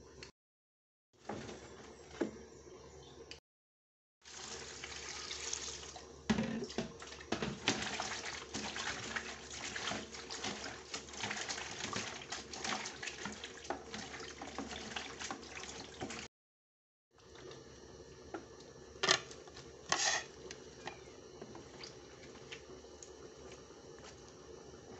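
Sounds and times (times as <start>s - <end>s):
water pouring into basin: 4.2s - 16.3s
water splashing and sloshing: 4.2s - 16.3s, 19.4s - 24.4s.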